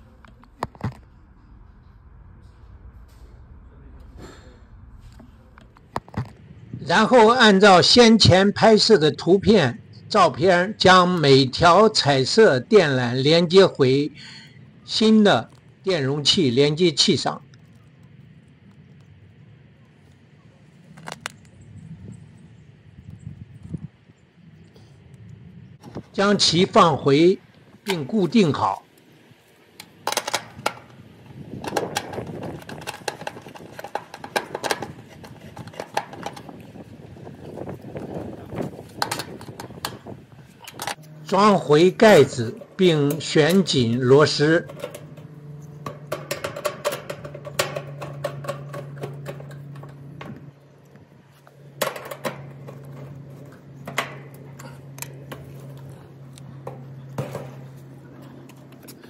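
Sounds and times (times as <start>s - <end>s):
handling noise: 0.0s - 6.9s, 27.4s - 59.0s
steady low hum: 0.0s - 59.0s
screwdriver clicking and scraping metal: 31.6s - 36.6s, 44.6s - 50.5s
screwdriver clicking on sheet metal: 31.6s - 36.6s.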